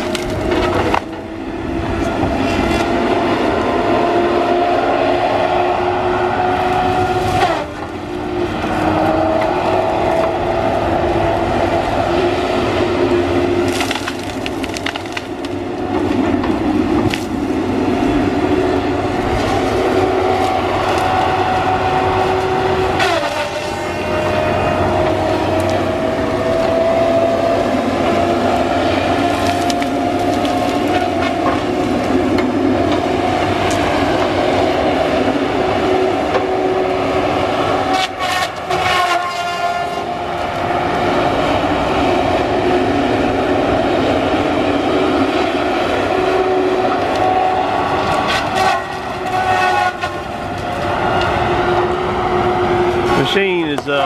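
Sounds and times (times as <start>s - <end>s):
trees cracking and snapping: 0.0s - 1.3s, 6.7s - 8.8s, 13.3s - 35.3s, 37.3s - 41.1s, 46.8s - 51.9s
diesel engine and hydraulic whine: 0.0s - 54.0s.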